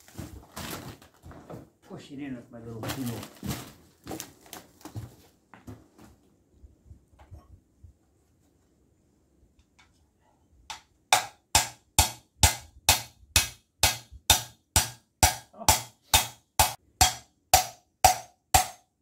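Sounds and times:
hammer tapping on metal: 10.7 - 18.9.

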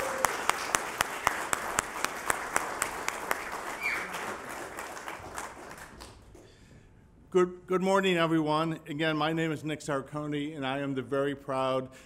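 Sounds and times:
group applauding: 0.0 - 6.5.

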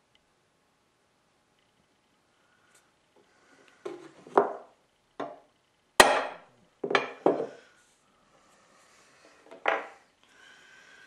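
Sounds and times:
hammer striking steel punch: 6.0 - 7.2.

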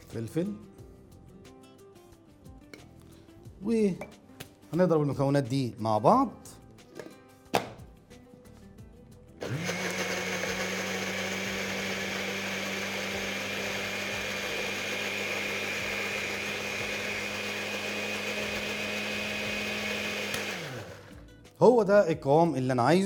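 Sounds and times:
electric blender whirring: 9.4 - 21.2.

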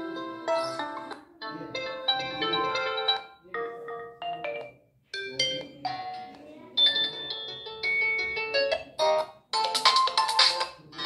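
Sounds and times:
phone ringtone chiming tunes: 0.0 - 8.7.

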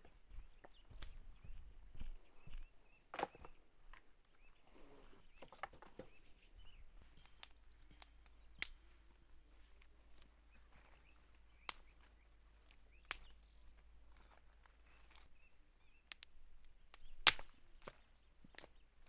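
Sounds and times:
footsteps on forest floor: 0.0 - 4.1
faint birdsong: 0.0 - 19.0
dry twigs snapping: 7.2 - 8.8, 11.6 - 13.5, 16.0 - 18.0.

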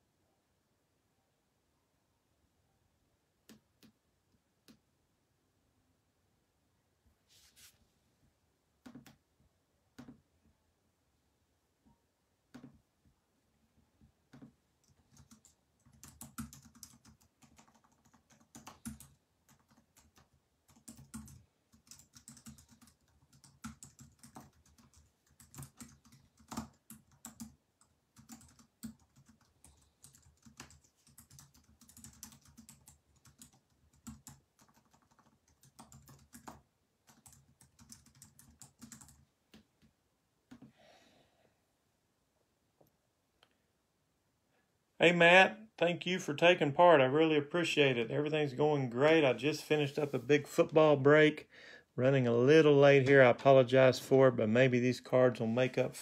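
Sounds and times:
faint keyboard typing: 3.4 - 4.9, 8.8 - 9.3, 9.9 - 10.3, 11.9 - 40.7.

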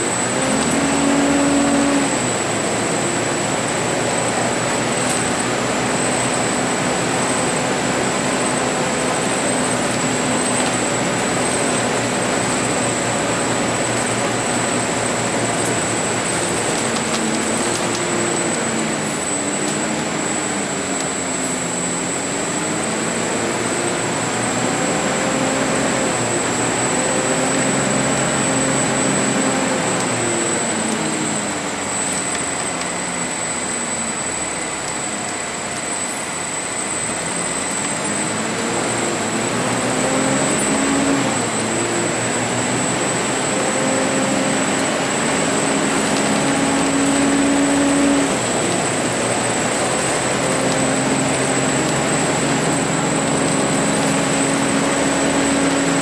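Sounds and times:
bus engine accelerating: 0.0 - 56.0
high whine: 0.0 - 56.0
road and tyre noise: 0.0 - 56.0.

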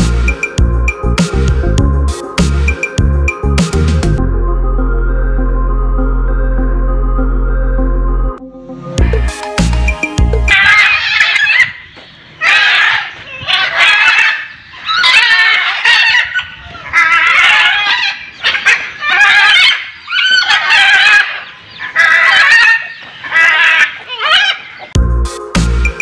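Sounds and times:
macaws squawking: 10.4 - 25.0.

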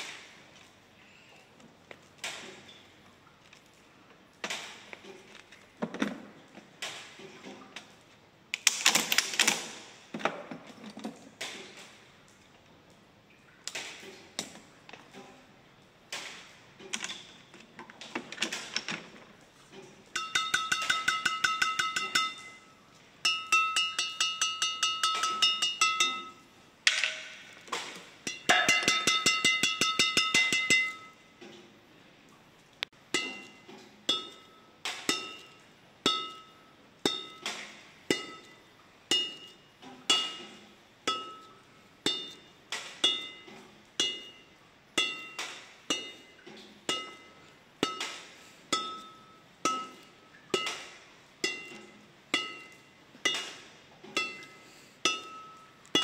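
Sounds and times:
racket strings tapped pinging: 20.2 - 22.6, 23.2 - 26.4, 28.2 - 31.1.

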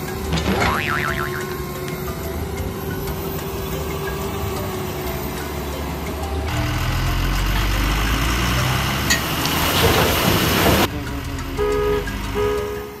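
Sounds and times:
truck engine rumbling: 0.0 - 13.0
horn toots: 11.6 - 13.0.

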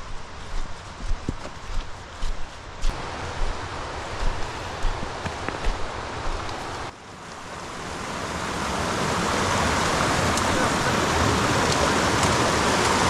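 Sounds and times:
footsteps on trail: 0.0 - 6.9
steady rushing noise: 0.0 - 13.0.

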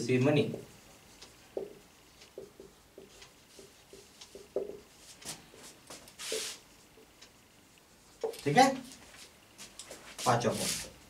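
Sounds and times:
marker squeaking on whiteboard: 6.2 - 6.6.

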